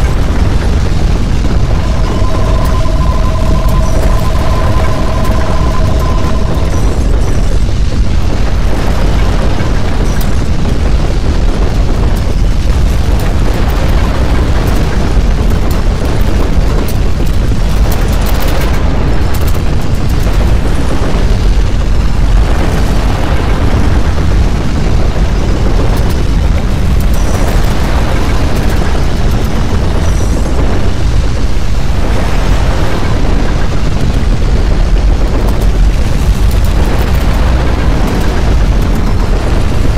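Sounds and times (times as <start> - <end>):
deep rumbling with crackling: 0.0 - 39.9.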